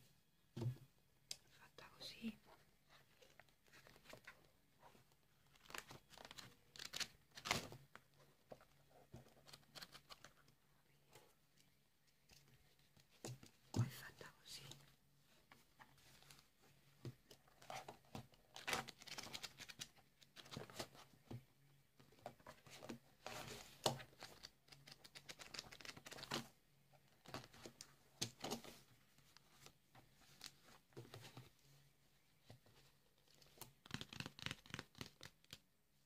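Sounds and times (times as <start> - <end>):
notebook pages flipping: 5.4 - 7.8, 17.6 - 21.0, 22.4 - 26.5, 33.3 - 35.6.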